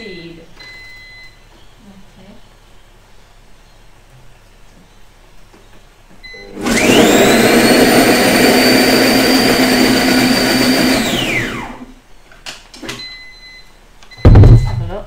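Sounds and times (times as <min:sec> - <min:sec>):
electric blender motor whining: 0:06.5 - 0:11.9.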